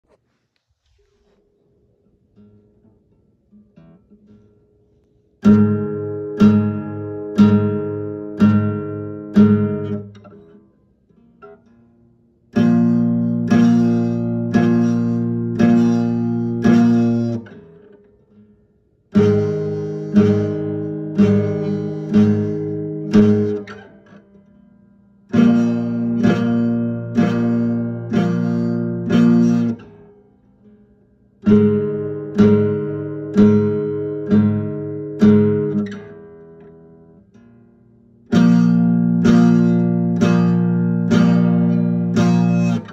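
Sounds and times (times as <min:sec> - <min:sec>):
acoustic guitar strumming chords: 0:02.4 - 0:42.9.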